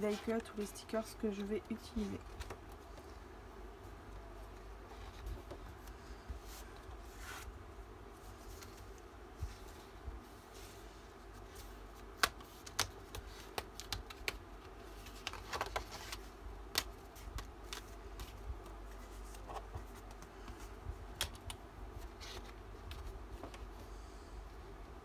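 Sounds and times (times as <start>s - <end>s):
paper rustling: 8.2s - 20.7s.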